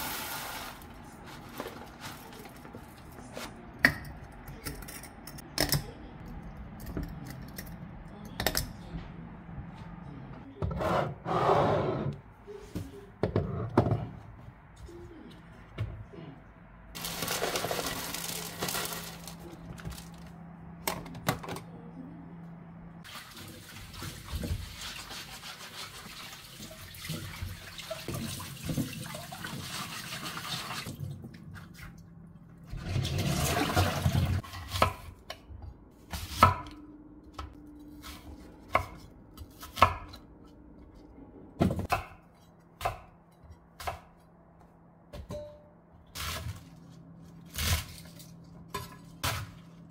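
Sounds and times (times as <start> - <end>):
kitchen tap running: 23.0 - 31.0.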